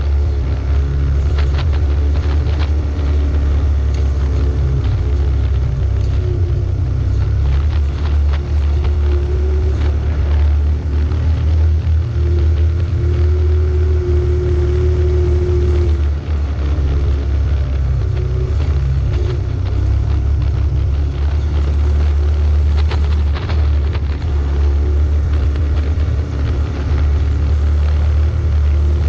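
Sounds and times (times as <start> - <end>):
off-road vehicle engine running: 0.0 - 29.0.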